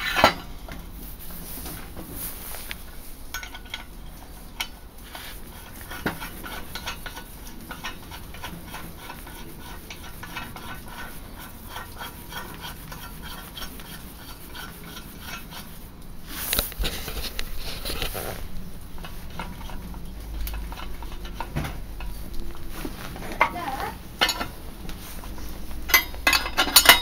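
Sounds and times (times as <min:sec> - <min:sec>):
steel bolts clinking on wood: 0:25.9 - 0:27.0.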